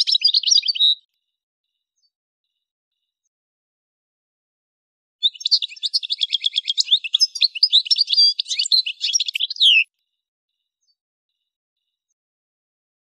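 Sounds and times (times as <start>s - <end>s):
goldfinch twittering song: 0.0s - 1.0s, 5.2s - 9.8s.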